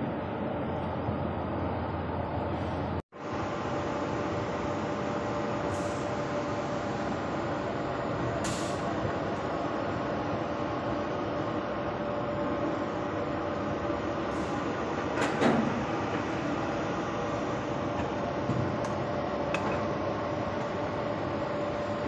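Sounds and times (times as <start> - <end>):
conveyor mechanical rumble: 0.0 - 22.0.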